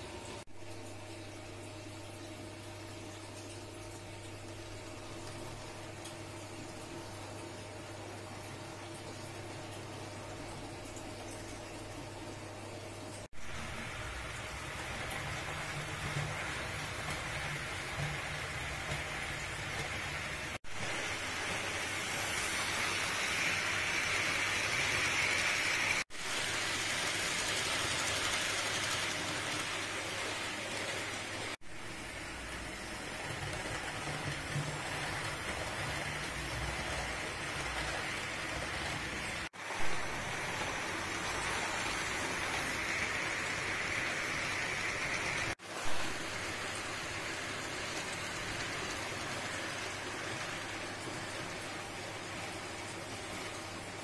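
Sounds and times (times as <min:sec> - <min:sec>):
model train wheels rolling on rails: 0:13.4 - 0:53.6.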